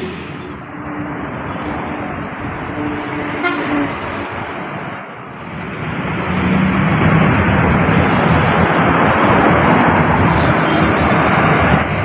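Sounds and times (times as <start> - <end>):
coach engine approaching: 0.0 - 12.0
road traffic: 0.0 - 12.0
vehicle horn: 3.3 - 4.0, 10.3 - 11.2.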